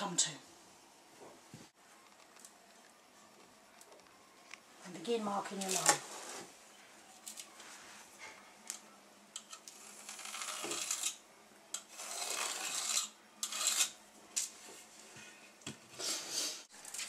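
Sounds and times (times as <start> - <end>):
pencil scratching: 11.9 - 13.9.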